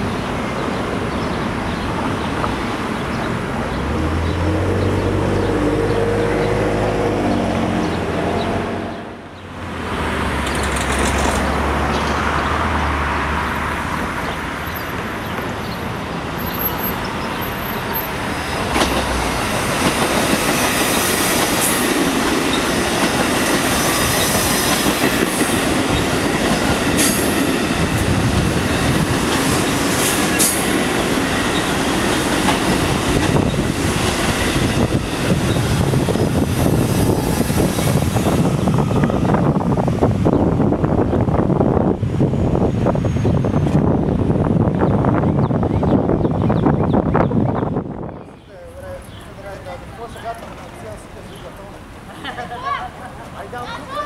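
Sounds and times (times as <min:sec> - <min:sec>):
train wheels rumbling on rails: 0:00.0 - 0:12.5, 0:13.8 - 0:48.2
wheels clicking over rail joints: 0:10.3 - 0:11.6.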